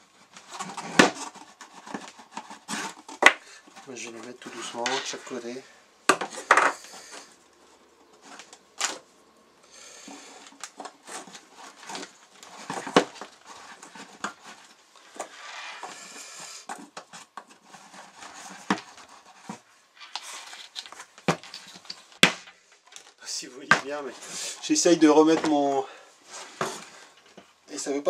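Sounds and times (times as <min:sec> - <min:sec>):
plastic rubbing and scraping: 0:00.0 - 0:09.2, 0:10.0 - 0:27.9
plastic parts clicking and knocking: 0:06.1 - 0:07.2, 0:16.7 - 0:23.9.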